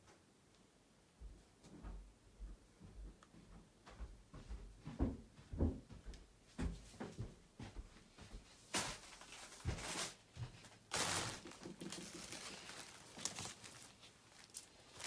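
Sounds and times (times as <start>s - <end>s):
heavy fabric rustling: 7.7s - 15.0s.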